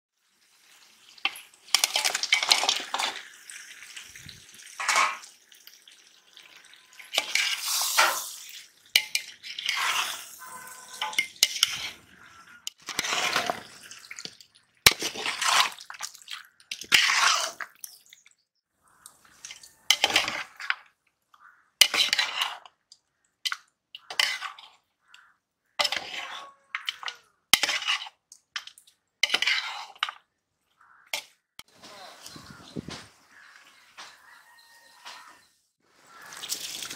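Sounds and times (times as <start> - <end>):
metal spoon scraping cooking pot: 6.9 - 14.0, 14.9 - 15.9, 16.6 - 17.7, 19.3 - 20.9, 21.8 - 24.9, 25.8 - 30.3.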